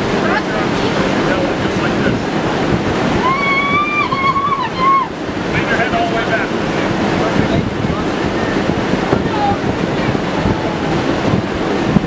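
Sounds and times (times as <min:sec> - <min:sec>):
wind on microphone: 0:00.0 - 0:12.0
woman squealing: 0:03.2 - 0:05.1.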